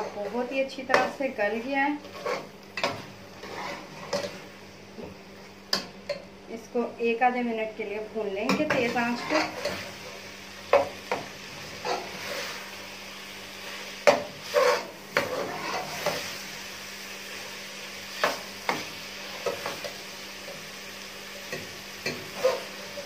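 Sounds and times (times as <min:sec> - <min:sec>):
meat sizzling in a pot: 0:00.0 - 0:06.3, 0:08.5 - 0:23.0
metal ladle scraping a pot: 0:02.0 - 0:04.4, 0:14.4 - 0:16.2.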